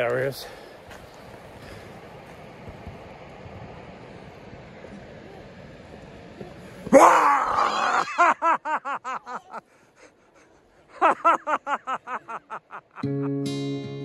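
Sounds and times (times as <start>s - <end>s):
person crying out loudly: 6.9s - 8.4s
rapid even laughter: 7.4s - 9.6s
acoustic guitar music: 13.0s - 14.0s.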